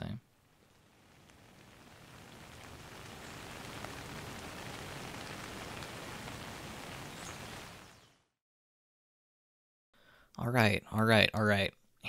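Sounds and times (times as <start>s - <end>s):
steady rain hiss: 0.0s - 8.4s.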